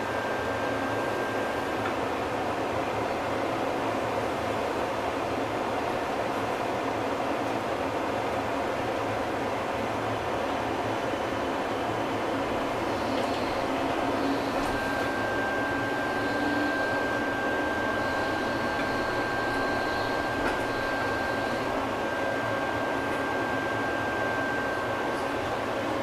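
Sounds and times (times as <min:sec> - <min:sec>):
tram running noise: 0:00.0 - 0:26.0
high whine: 0:11.7 - 0:26.0.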